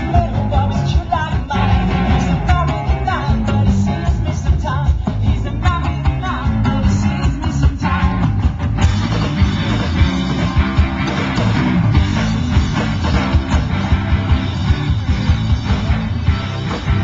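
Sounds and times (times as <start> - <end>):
drum kit: 0.0 - 17.0
electric guitars: 0.0 - 17.0.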